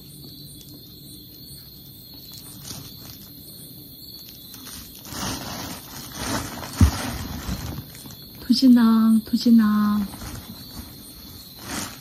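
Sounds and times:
plastic bag rustling: 0:02.3 - 0:03.3, 0:04.4 - 0:08.4, 0:10.0 - 0:12.0.

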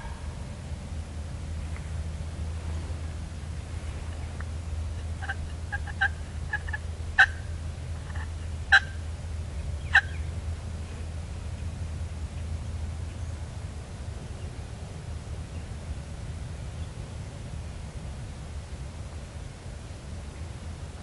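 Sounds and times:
wild turkey calls: 0:04.0 - 0:09.0, 0:09.8 - 0:10.3.

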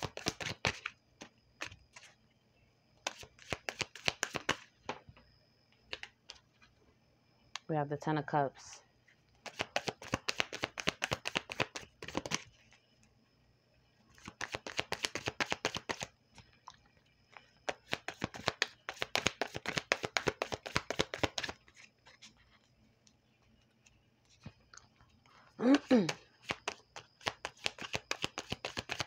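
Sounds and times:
cards being shuffled: 0:00.0 - 0:00.9, 0:03.0 - 0:04.7, 0:09.4 - 0:12.5, 0:14.2 - 0:16.1, 0:17.7 - 0:22.4, 0:25.8 - 0:29.0.

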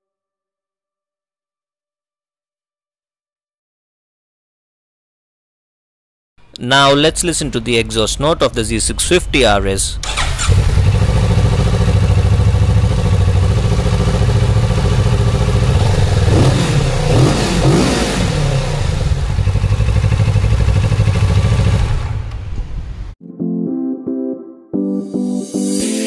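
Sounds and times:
motorcycle throttle blips: 0:10.0 - 0:22.9
motorcycle engine idling: 0:10.0 - 0:23.0.

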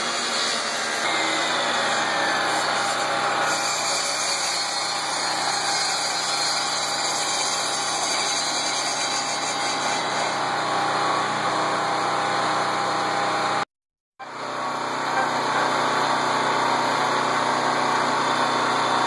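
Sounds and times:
table saw running: 0:00.0 - 0:13.6, 0:14.2 - 0:19.0.

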